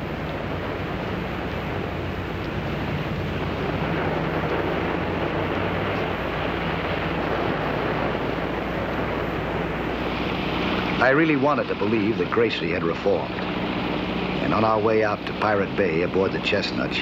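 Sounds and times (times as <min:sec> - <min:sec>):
low steady hum: 0:00.0 - 0:17.0
sea rushing: 0:00.0 - 0:17.0
wind: 0:00.0 - 0:17.0.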